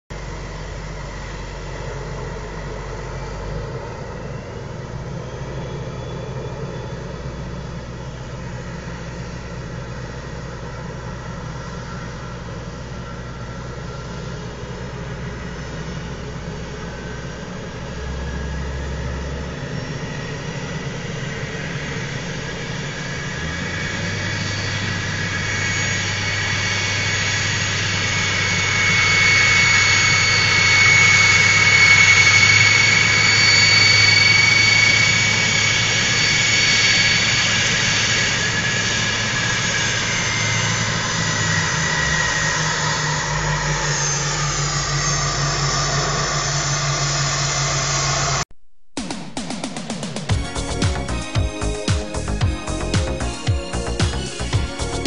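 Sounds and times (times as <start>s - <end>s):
diesel engine running: 0.1s - 48.4s, 50.3s - 55.0s
turbocharger whistling: 0.2s - 48.4s, 49.8s - 55.0s.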